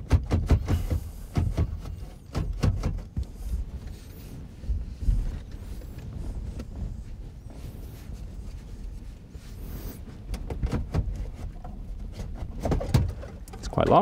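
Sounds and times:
plastic and metal knocks: 0.0 - 3.3, 12.4 - 14.0
dull thumps: 0.0 - 4.0, 10.2 - 14.0.

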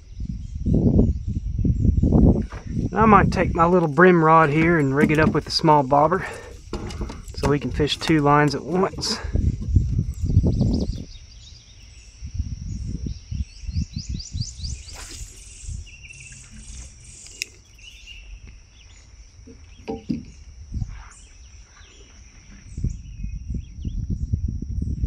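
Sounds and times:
birds chirping: 0.0 - 24.3
insect drone: 0.0 - 25.0
low thuds and rumble: 1.7 - 11.2.

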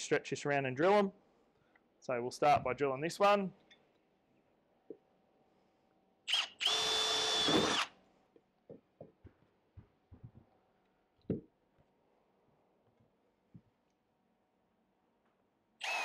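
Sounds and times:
cordless drill whining: 6.3 - 7.9, 15.8 - 16.0.

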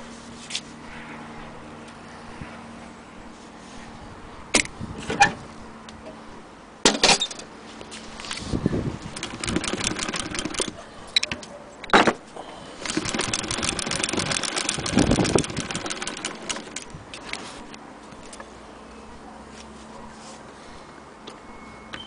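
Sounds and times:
sewing machine clicking: 9.1 - 10.8, 12.8 - 17.4.

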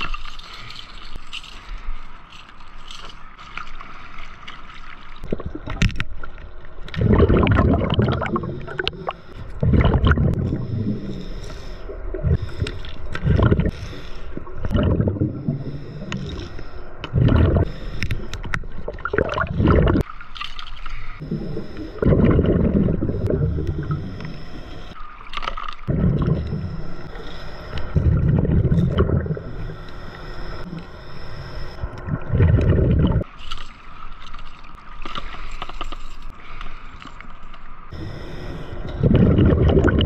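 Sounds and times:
exhaled bubbles gurgling: 5.2 - 20.1, 21.2 - 29.8, 31.7 - 33.3, 38.8 - 40.0
hissing regulator inhale: 8.4 - 9.6, 10.4 - 18.6, 20.9 - 25.0, 26.2 - 28.2, 28.8 - 32.0, 37.9 - 39.3.

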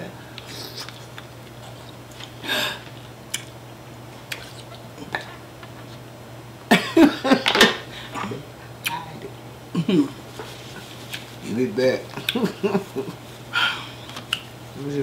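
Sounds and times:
person coughing or laughing: 6.7 - 8.3, 9.7 - 10.2.

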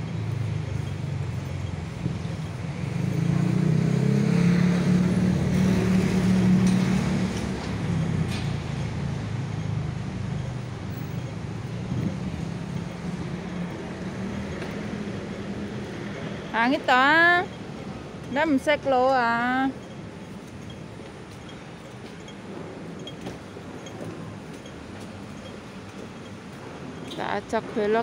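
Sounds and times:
vehicle engine passing: 0.0 - 17.1
traffic rumble: 0.0 - 28.0.

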